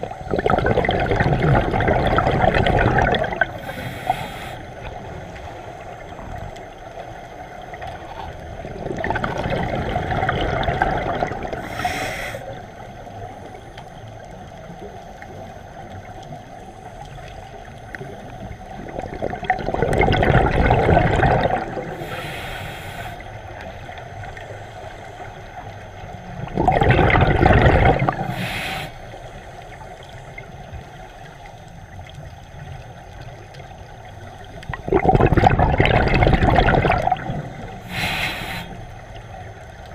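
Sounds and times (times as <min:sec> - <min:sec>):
exhaled bubbles rushing: 0:00.0 - 0:04.2, 0:04.8 - 0:13.5, 0:17.2 - 0:22.2, 0:25.5 - 0:28.6, 0:31.8 - 0:38.2
low water hiss: 0:00.0 - 0:39.9
regulator hiss: 0:03.5 - 0:08.2, 0:11.5 - 0:14.2, 0:21.8 - 0:23.9, 0:28.0 - 0:31.6, 0:37.5 - 0:39.8.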